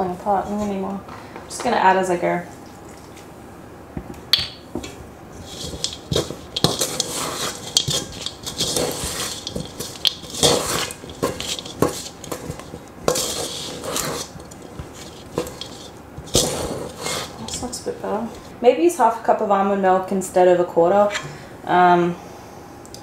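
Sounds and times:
dough mixed in a metal bowl: 4.8 - 18.6.

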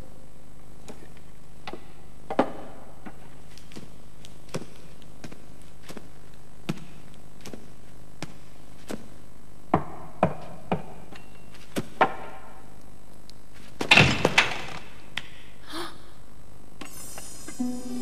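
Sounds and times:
footsteps on stone floor: 3.3 - 9.2.

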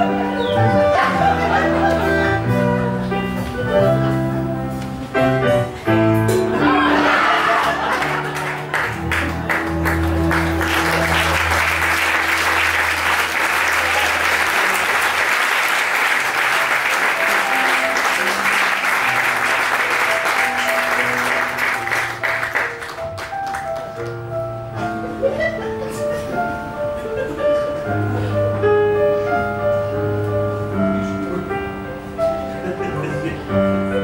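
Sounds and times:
background music: 0.0 - 34.0
audience applauding: 6.7 - 24.4.

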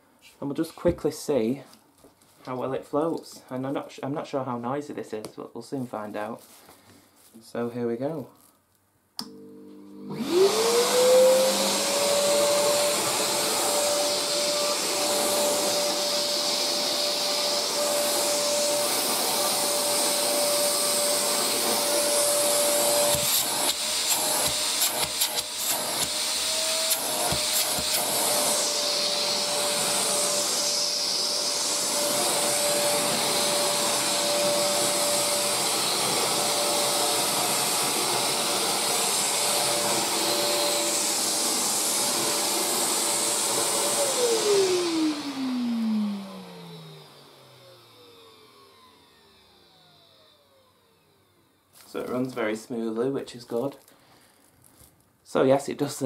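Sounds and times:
vacuum cleaner motor whining: 9.2 - 52.4.

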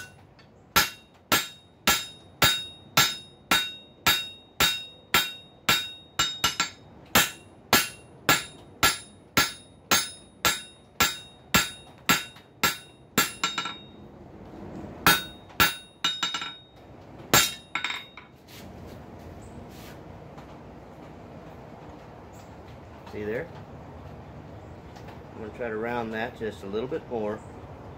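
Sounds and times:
hammer ringing on hot steel: 0.0 - 0.2, 0.8 - 14.0, 15.0 - 18.3.

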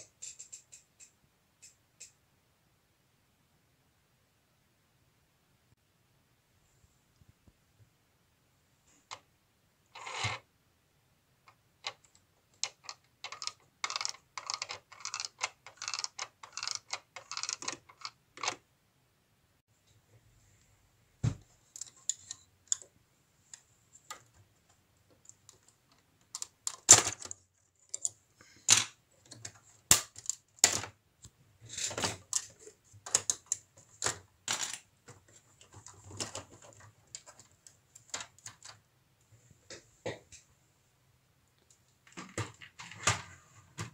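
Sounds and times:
plastic bricks clicking and rattling: 11.8 - 18.6, 26.2 - 31.0, 31.7 - 38.8.

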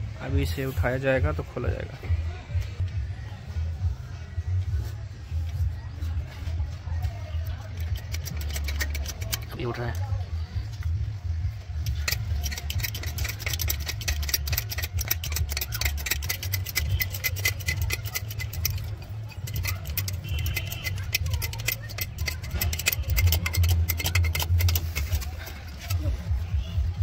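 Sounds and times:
jack clicking and rattling: 7.3 - 10.2, 11.7 - 26.4.

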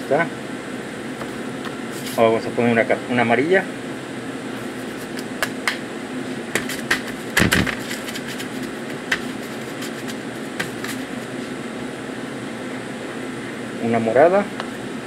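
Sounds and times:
steady machine hum: 0.0 - 15.0
hands patting dough: 4.6 - 5.8, 6.5 - 11.4.

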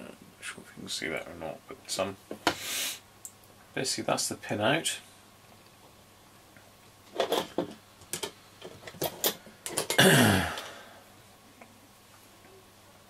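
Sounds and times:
breathy vocal sound: 10.0 - 11.1.

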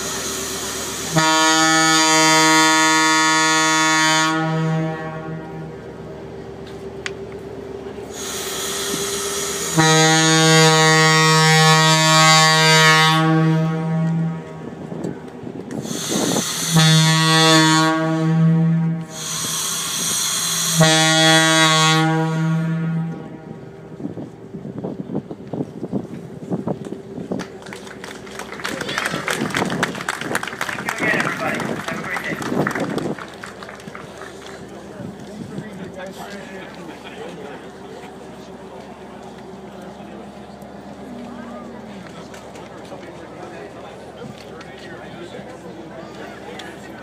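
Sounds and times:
ship's horn blasts: 0.0 - 26.8.

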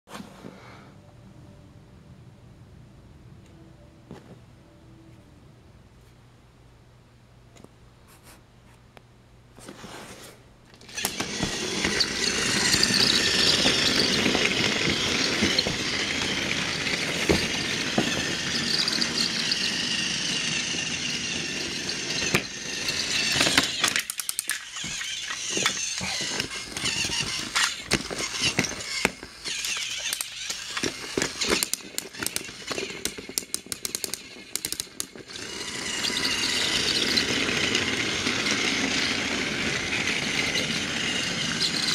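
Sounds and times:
toy train motor whirring: 10.8 - 41.9
toy train wheels rattling on track: 10.8 - 41.9.

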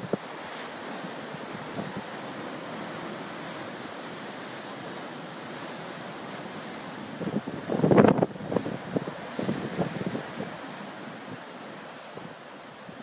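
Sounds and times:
waves breaking against rocks: 0.0 - 13.0.

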